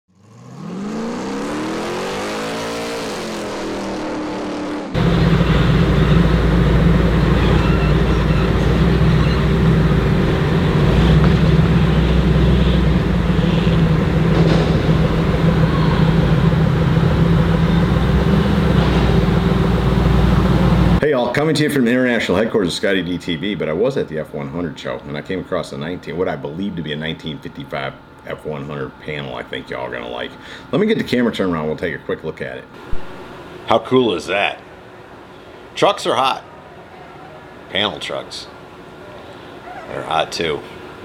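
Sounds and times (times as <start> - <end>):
engine revving: 0.1 - 21.0
truck engine running steadily: 4.9 - 21.0.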